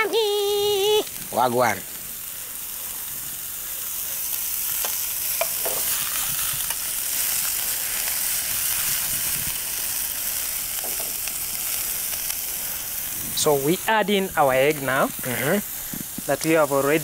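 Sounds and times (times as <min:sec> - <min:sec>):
food sizzling in a pan: 0:00.0 - 0:17.0.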